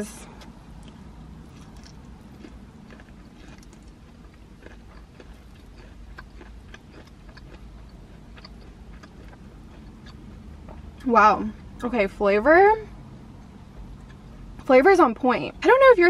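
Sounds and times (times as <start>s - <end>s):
low steady hum: 0.0s - 16.0s
person chewing and crunching: 0.4s - 11.1s, 13.8s - 14.3s.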